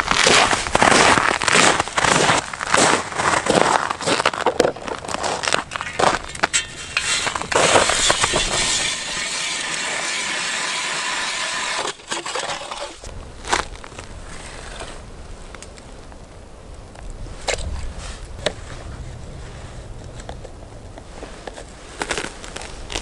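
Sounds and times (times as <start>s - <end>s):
footsteps crunching on ice: 0.0s - 9.8s, 13.4s - 14.1s
ice auger crunching scrape: 0.0s - 15.1s, 21.5s - 23.0s.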